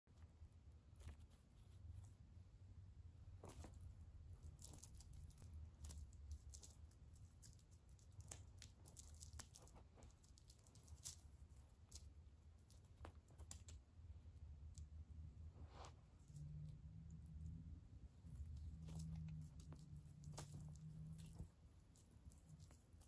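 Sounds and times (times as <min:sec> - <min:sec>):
low steady hum: 0:00.1 - 0:23.0.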